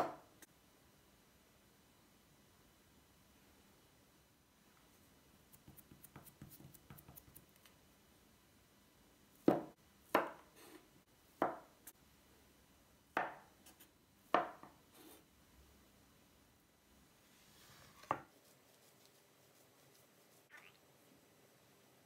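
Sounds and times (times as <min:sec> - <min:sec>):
knife chopping on wooden table: 0:09.4 - 0:10.5, 0:11.4 - 0:11.7, 0:14.3 - 0:14.7.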